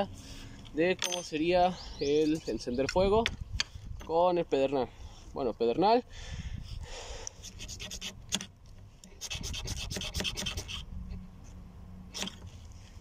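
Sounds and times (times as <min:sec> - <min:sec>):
striker rasping on ferro rod: 0:07.4 - 0:10.9, 0:12.1 - 0:12.5.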